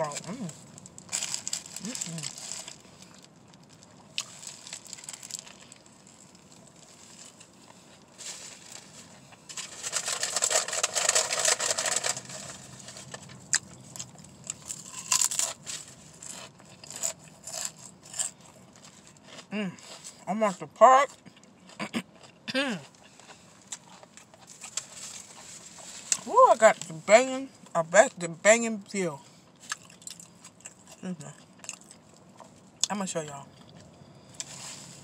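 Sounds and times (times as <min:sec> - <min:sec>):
paper wrapper crinkling: 0:00.2 - 0:07.5, 0:08.1 - 0:16.4
chewing and mouth sounds: 0:29.5 - 0:34.6.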